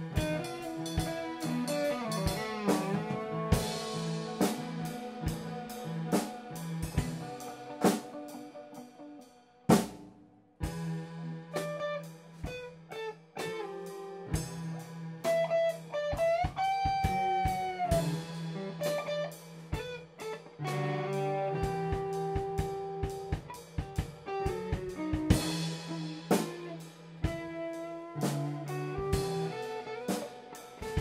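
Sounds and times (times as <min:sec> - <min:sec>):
keyboard: 0:00.0 - 0:09.3
drum kit: 0:00.0 - 0:31.0
electric guitar: 0:00.0 - 0:31.0.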